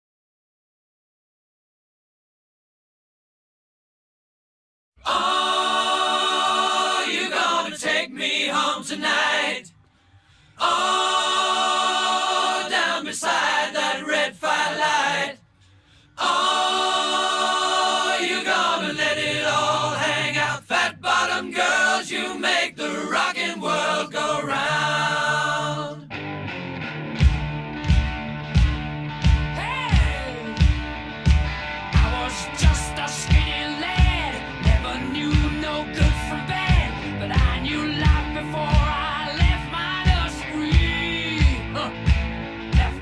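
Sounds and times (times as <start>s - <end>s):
a cappella vocal harmonies: 5.0s - 26.1s, 29.5s - 30.8s, 31.9s - 43.0s.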